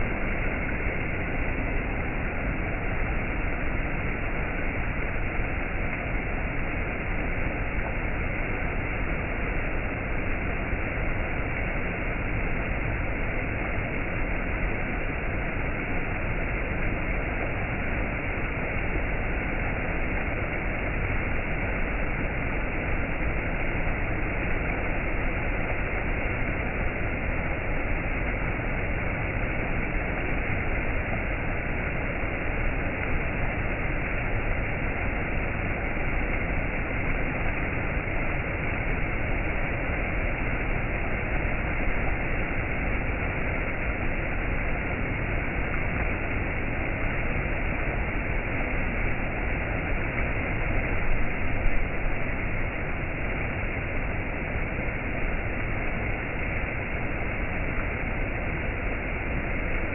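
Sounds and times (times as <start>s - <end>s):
stream rushing over rocks: 0.0s - 59.9s.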